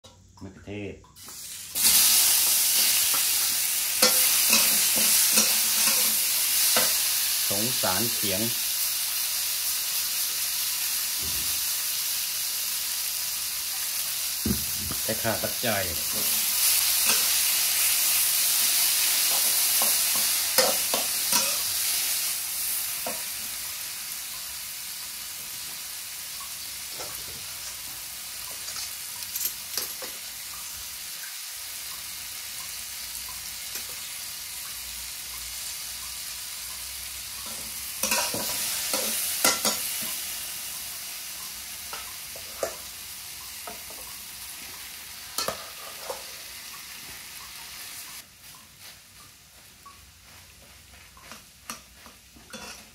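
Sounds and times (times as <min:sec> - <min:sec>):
tomatoes sizzling in a wok: 0:00.0 - 0:52.9
metal spatula scraping a pan: 0:16.0 - 0:17.9, 0:18.8 - 0:23.4, 0:37.4 - 0:40.2, 0:45.3 - 0:46.4, 0:51.3 - 0:52.9.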